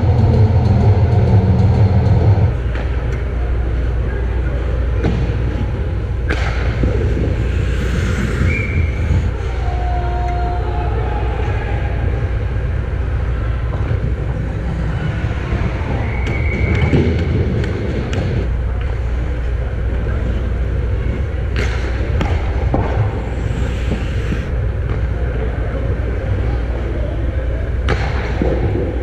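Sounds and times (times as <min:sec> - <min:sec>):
low rumble of rink noise: 0:00.0 - 0:29.0
stick and puck clacks: 0:06.2 - 0:08.6, 0:16.2 - 0:19.0, 0:21.5 - 0:25.1, 0:27.8 - 0:29.0
skate scrapes: 0:07.0 - 0:09.6.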